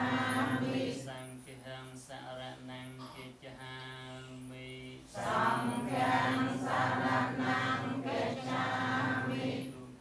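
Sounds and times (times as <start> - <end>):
group chanting in unison: 0.0 - 1.2, 5.1 - 9.9.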